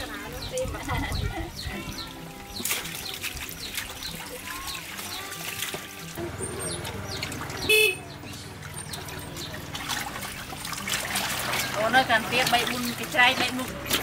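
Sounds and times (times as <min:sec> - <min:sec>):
water sloshing and splashing: 0:00.0 - 0:14.0.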